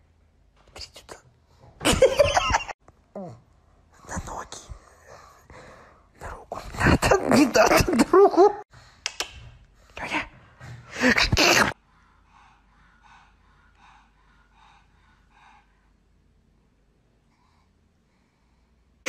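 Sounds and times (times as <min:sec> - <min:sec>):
dog breathing rhythmically: 0:04.7 - 0:06.2, 0:08.6 - 0:19.0.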